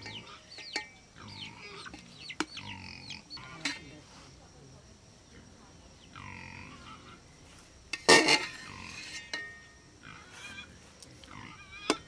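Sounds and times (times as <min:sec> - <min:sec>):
faint chirping calls: 0:00.0 - 0:03.9
metal ladle scraping a pot: 0:03.3 - 0:03.9, 0:07.9 - 0:10.7, 0:11.6 - 0:12.0.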